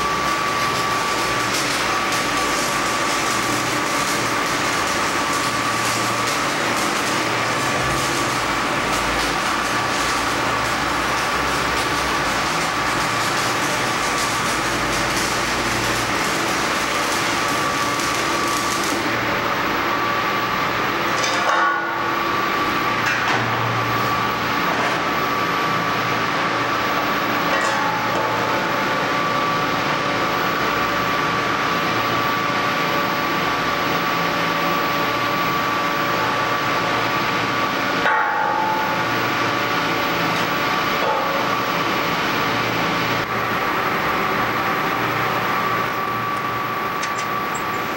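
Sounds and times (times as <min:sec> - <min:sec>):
welding arc crackling: 0:00.0 - 0:29.8
welding machine hum: 0:00.0 - 0:47.9.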